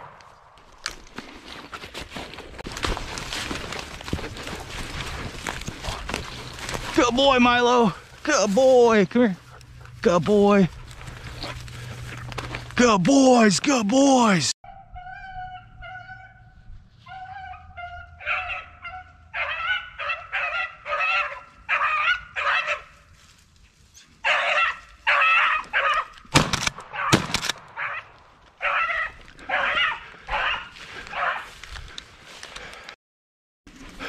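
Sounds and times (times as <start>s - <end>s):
dogs howling and barking: 14.7s - 23.0s, 24.2s - 26.2s, 27.8s - 31.5s.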